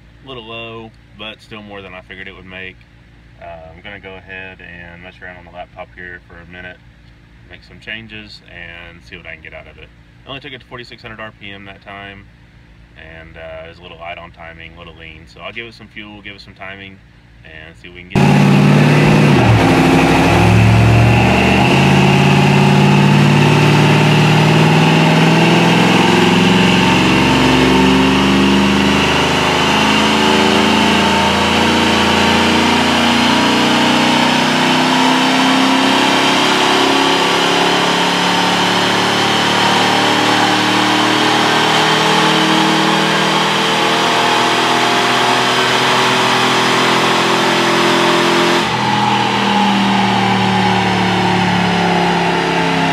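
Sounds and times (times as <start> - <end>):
high whine: 17.6 - 52.9
engine running on dyno: 18.1 - 52.9.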